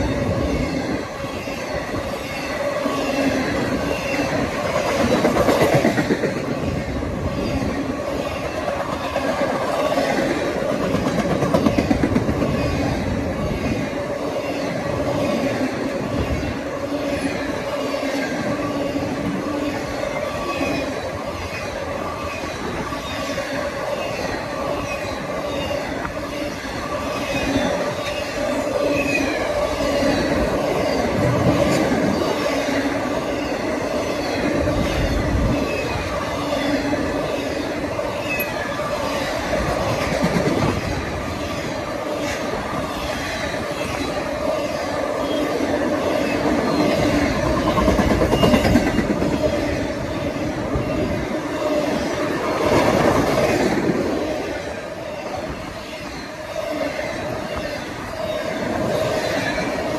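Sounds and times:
train wheels clicking over rails: 0:02.8 - 0:07.2, 0:08.1 - 0:13.8, 0:38.4 - 0:41.5, 0:45.2 - 0:49.8
ringing tones from wheels: 0:43.0 - 0:49.6.

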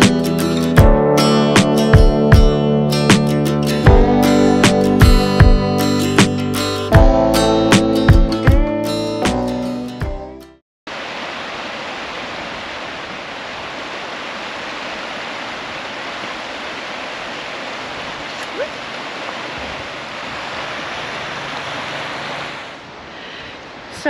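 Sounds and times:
river water rushing over stones: 0:10.9 - 0:24.0.

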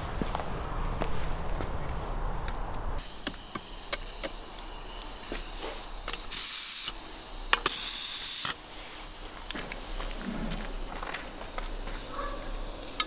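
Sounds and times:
bursts of hissing: 0:03.0 - 0:13.0
steady hiss: 0:03.0 - 0:13.0.

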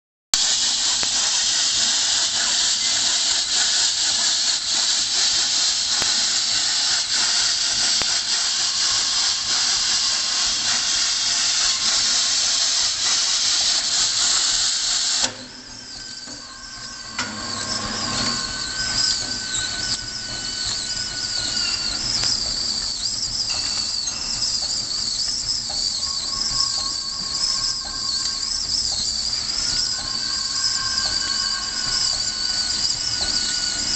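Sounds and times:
coil wrapping machine running: 0:00.4 - 0:33.9
loud steady hiss: 0:00.4 - 0:33.9
wavering high whine: 0:15.2 - 0:33.9.

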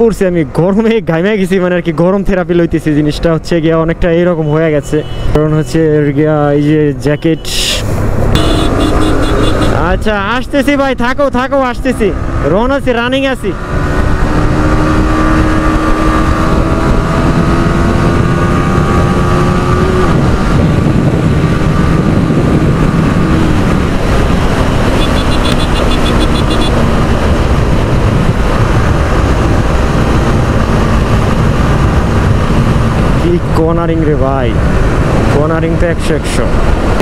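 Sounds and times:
wind rush on microphone: 0:07.8 - 0:37.0
motorcycle engine running: 0:08.4 - 0:09.8, 0:13.7 - 0:33.2.

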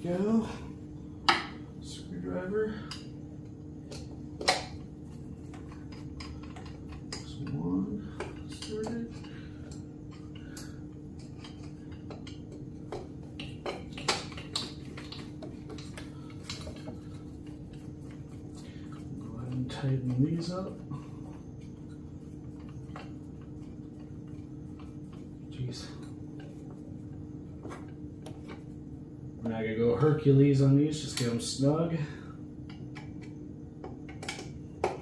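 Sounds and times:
steady low hum: 0:00.0 - 0:35.0
small clicks of hand work: 0:32.6 - 0:35.0.

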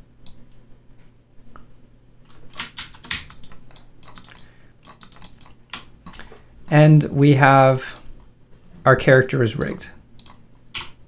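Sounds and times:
faint low hum: 0:00.0 - 0:11.0
keyboard and mouse clicks: 0:00.2 - 0:00.4, 0:02.3 - 0:06.4, 0:09.5 - 0:11.0.

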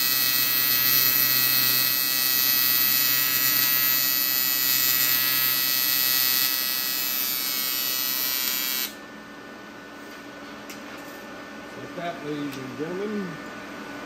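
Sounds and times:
welding arc buzzing: 0:00.0 - 0:09.0.

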